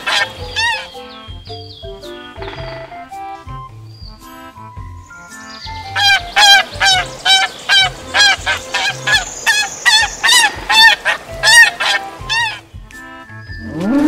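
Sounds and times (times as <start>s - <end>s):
swan honking: 0.0s - 1.5s, 5.7s - 14.0s.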